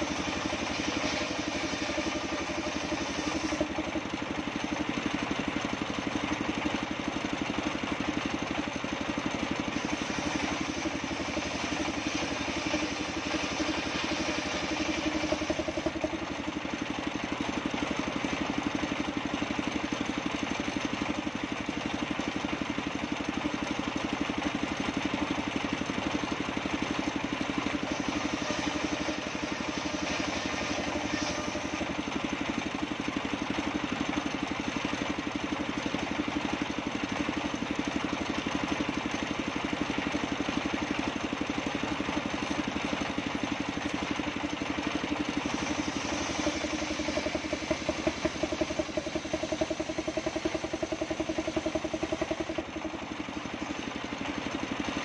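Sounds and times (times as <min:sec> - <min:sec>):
engine drone: 0:00.0 - 0:04.1, 0:09.6 - 0:16.6, 0:27.7 - 0:33.0, 0:42.4 - 0:55.0
circular saw cutting wood: 0:00.0 - 0:05.2, 0:09.3 - 0:19.0, 0:26.2 - 0:35.0, 0:41.6 - 0:55.0.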